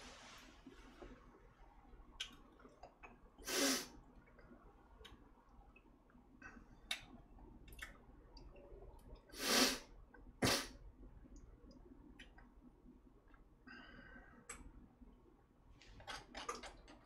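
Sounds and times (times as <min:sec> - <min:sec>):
loud breathy bursts: 0:03.4 - 0:03.9.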